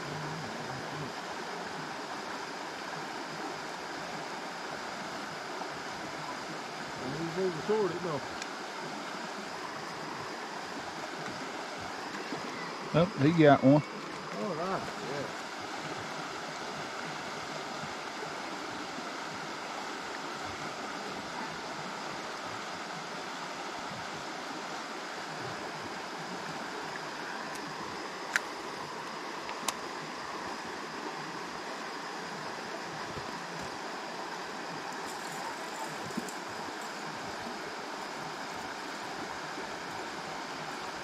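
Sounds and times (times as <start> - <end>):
creek water running: 0.0 - 41.0.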